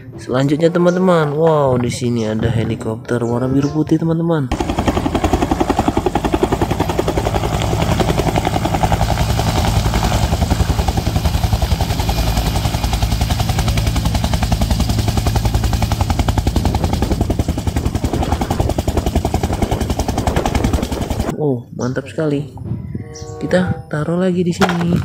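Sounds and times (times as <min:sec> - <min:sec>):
helicopter engine noise: 0:04.5 - 0:21.4
helicopter rotor beating: 0:04.5 - 0:21.4.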